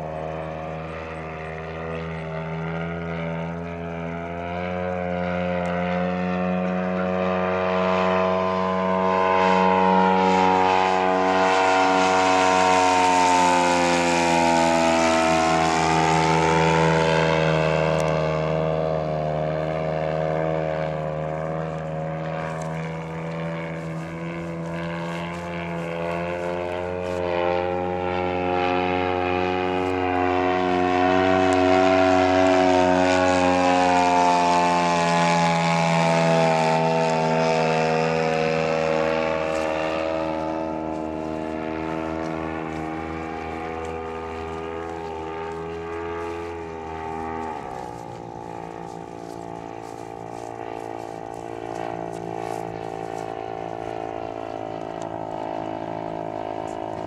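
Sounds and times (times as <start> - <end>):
model airplane engine and propeller: 0.0 - 57.0.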